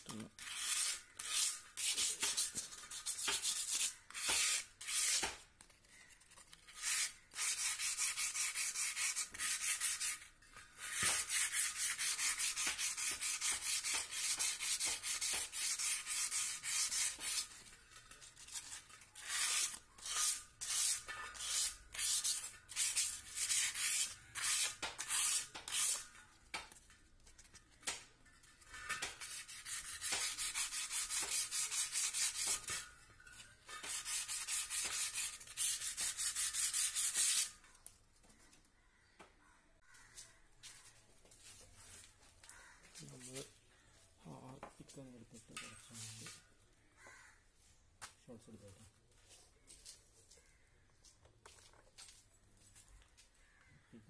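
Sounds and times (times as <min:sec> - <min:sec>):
sandpaper scraping metal rim: 0:00.3 - 0:05.4, 0:06.2 - 0:26.2, 0:28.6 - 0:37.6.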